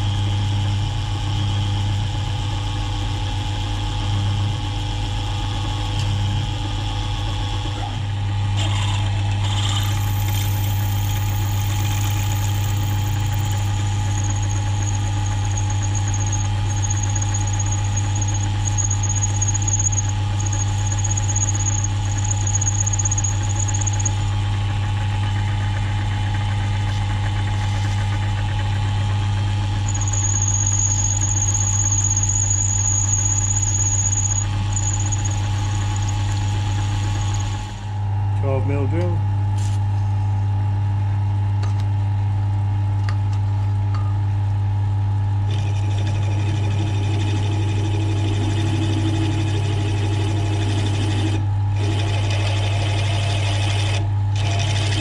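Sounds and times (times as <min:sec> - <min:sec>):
milling machine humming: 0:07.9 - 0:38.0, 0:45.5 - 0:55.0
high-pitched drilling squeal: 0:09.6 - 0:24.3, 0:29.9 - 0:37.6.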